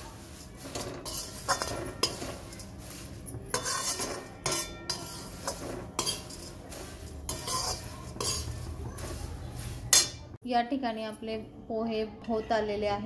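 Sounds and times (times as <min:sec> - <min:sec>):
dry flakes rustling: 0:00.0 - 0:10.4
spatula scraping a metal pan: 0:00.0 - 0:10.4.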